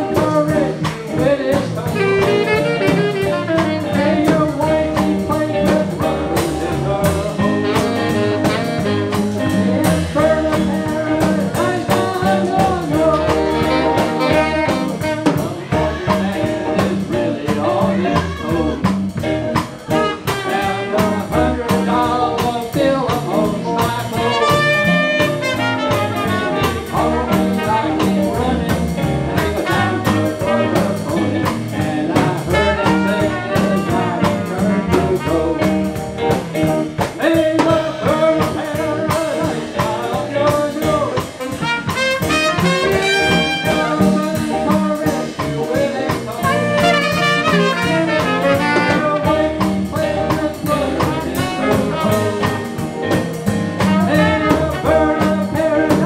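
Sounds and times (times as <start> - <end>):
jazz band playing blues: 0.0 - 56.0
trumpet playing lead: 1.9 - 4.8, 7.4 - 16.4, 18.0 - 18.8, 19.8 - 21.2, 24.2 - 28.5, 29.4 - 31.3, 32.5 - 36.0, 41.2 - 44.4, 46.3 - 49.8, 50.8 - 52.6, 53.8 - 55.7.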